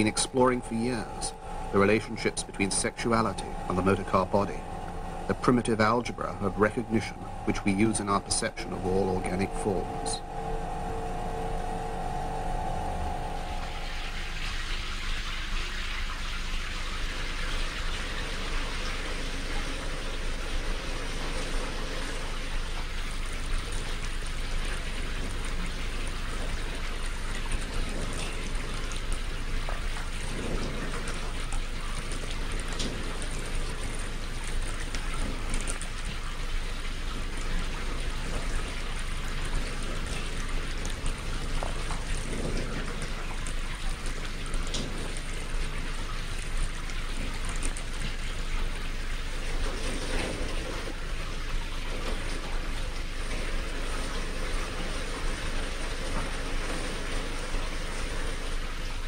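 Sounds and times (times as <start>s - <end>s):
water hissing: 0.0s - 15.8s
low hum: 0.0s - 58.1s.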